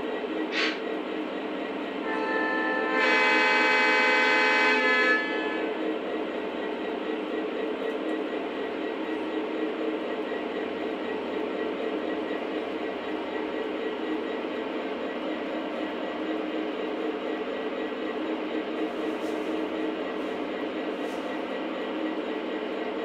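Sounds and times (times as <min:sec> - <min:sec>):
model train horn: 0:02.0 - 0:05.8
diesel engine rumble: 0:05.8 - 0:23.0.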